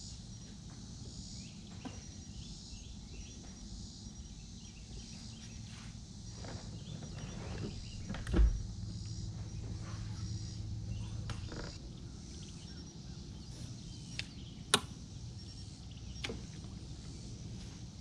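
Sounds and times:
electric motor humming: 0:02.9 - 0:18.0
sharp clicks: 0:14.1 - 0:15.0.

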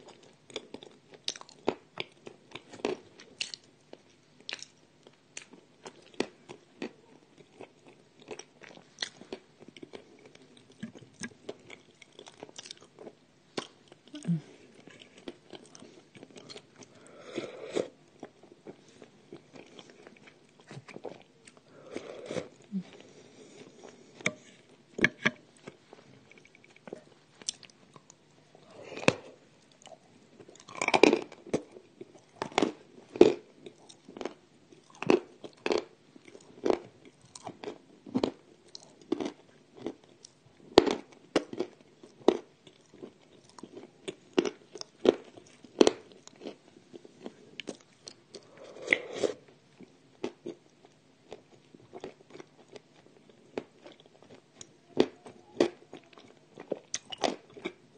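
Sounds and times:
crunchy chewing of clay: 0:00.0 - 0:17.1, 0:17.8 - 0:57.9.

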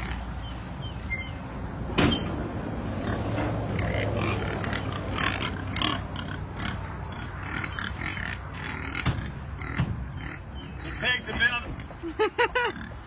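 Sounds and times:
hogs grunting and oinking: 0:00.0 - 0:00.4, 0:03.0 - 0:11.1.

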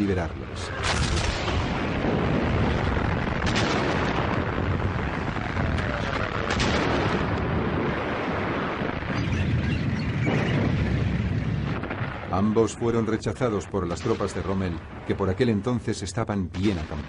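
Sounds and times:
artillery fire and explosions: 0:00.0 - 0:17.0
heavy rumble: 0:00.2 - 0:15.9
sharp cracks: 0:00.6 - 0:09.0.

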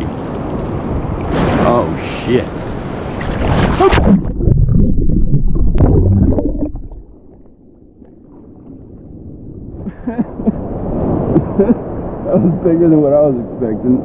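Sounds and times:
water splashing: 0:02.5 - 0:09.7
muffled underwater rumble and gurgling: 0:03.2 - 0:14.0.

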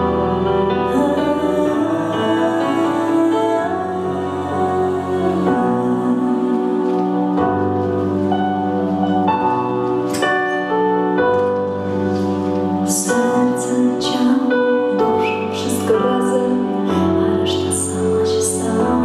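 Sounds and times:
instrumental backing with keyboard: 0:00.0 - 0:19.0
woman singing into microphone: 0:12.9 - 0:19.0.

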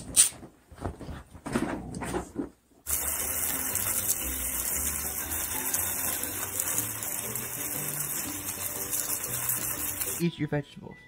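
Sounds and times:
hose water spraying on leaves: 0:02.9 - 0:10.2.

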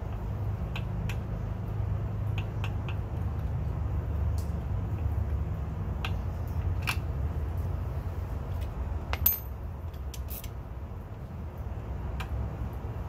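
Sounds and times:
sharp metallic clink: 0:09.2 - 0:09.6.

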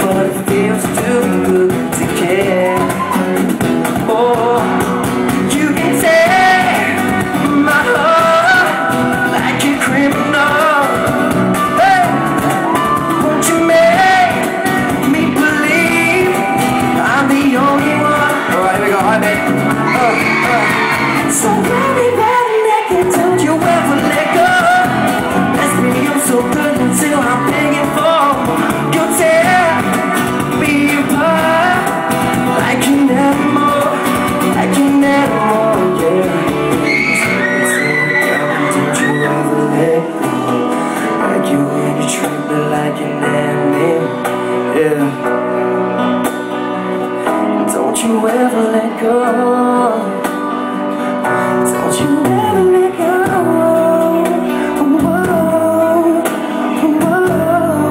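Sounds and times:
man singing: 0:00.0 - 0:46.0, 0:47.2 - 0:57.9
acoustic guitar: 0:00.0 - 0:57.9
keyboard: 0:00.0 - 0:57.9
audience shouting and whooping: 0:11.5 - 0:13.4, 0:19.8 - 0:23.0, 0:36.8 - 0:39.5.

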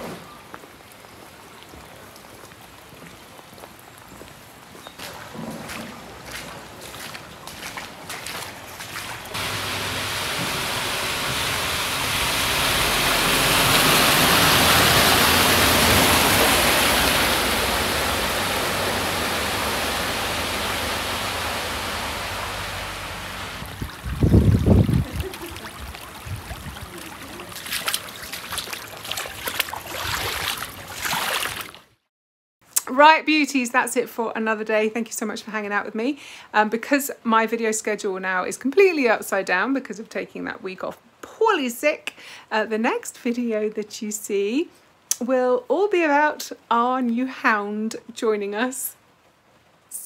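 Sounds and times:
tyres rushing through water: 0:00.0 - 0:32.0
footsteps splashing in water: 0:01.7 - 0:09.4, 0:23.6 - 0:32.0
low engine hum: 0:09.3 - 0:28.2.

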